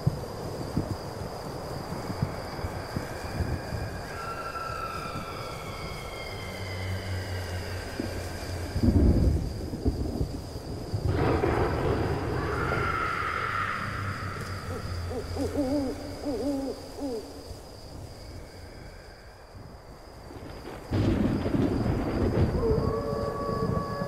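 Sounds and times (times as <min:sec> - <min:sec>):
thunder rumbles: 0:00.0 - 0:18.3, 0:19.4 - 0:24.0
owl hooting: 0:12.8 - 0:17.5.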